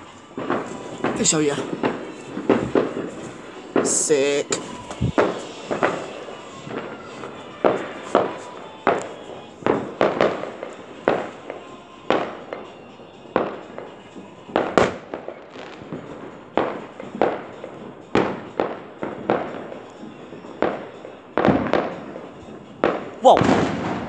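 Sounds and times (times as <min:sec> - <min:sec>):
fireworks banging: 0:00.0 - 0:24.0.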